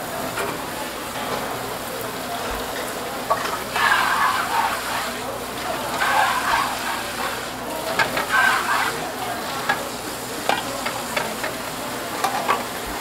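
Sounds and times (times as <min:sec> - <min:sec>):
tap water spraying: 0:03.3 - 0:13.0.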